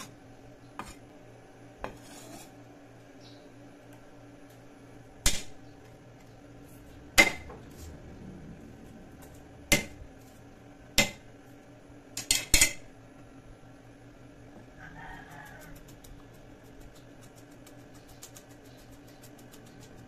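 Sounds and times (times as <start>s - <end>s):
cleaver striking chopping block: 7.2s - 7.5s, 9.7s - 10.0s, 11.0s - 11.2s.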